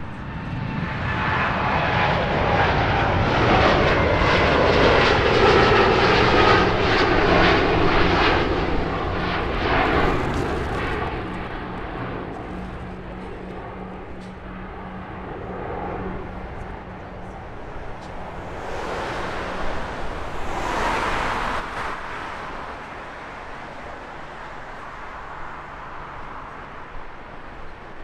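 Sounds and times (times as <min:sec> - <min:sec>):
jet engine roar: 0:00.0 - 0:28.0
low rumble: 0:16.7 - 0:22.8.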